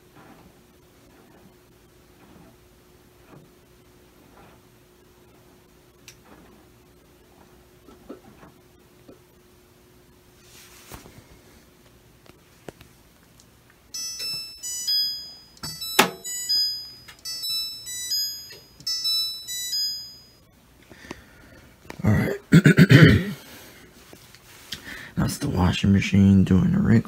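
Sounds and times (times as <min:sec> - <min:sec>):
washer beeping melody: 0:13.8 - 0:21.6.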